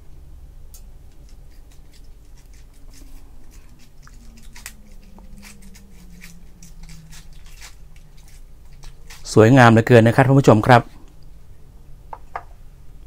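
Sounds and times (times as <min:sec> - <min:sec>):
ice crackling in a cup: 0:01.2 - 0:09.4.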